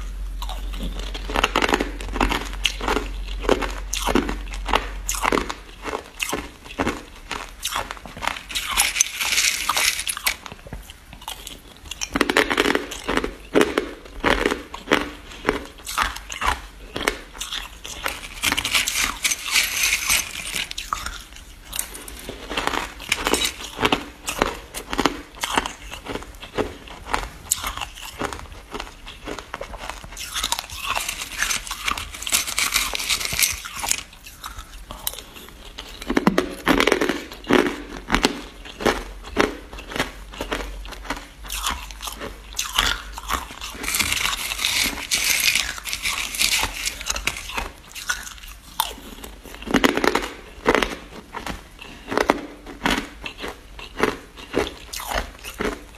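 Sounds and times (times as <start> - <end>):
person crunching ice: 0.4 - 55.9.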